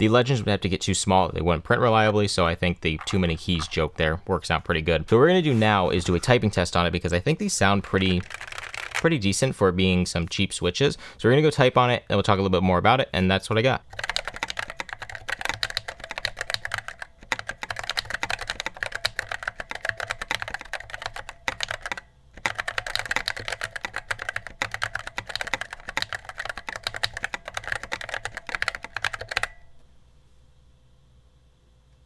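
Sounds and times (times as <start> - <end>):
mechanical keyboard typing: 7.6 - 9.2, 13.9 - 29.6.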